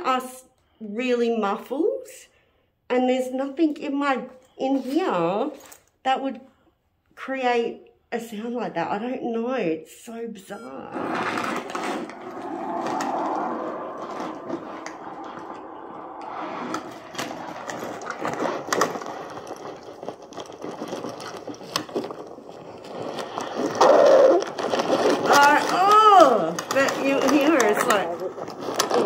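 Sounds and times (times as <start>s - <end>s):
muffled rustling and scraping: 10.7s - 29.0s.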